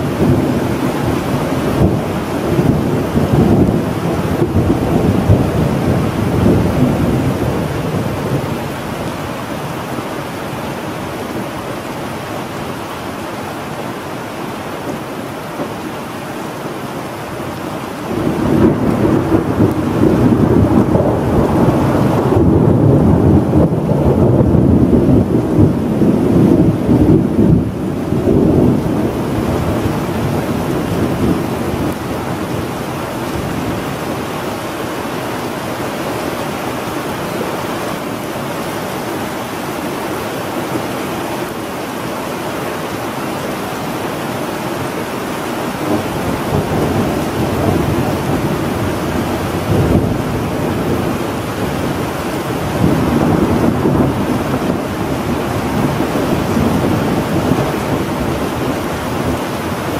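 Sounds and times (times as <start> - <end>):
rumble of thunder: 0.0 - 9.2, 18.0 - 34.1, 45.8 - 59.6
steady rain: 0.0 - 59.9.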